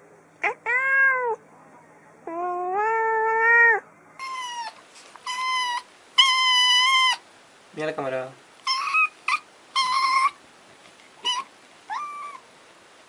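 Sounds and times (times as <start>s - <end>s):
cat meowing: 0.4s - 1.4s, 2.3s - 7.2s, 11.2s - 12.4s
kitten meowing high-pitched: 0.4s - 1.4s.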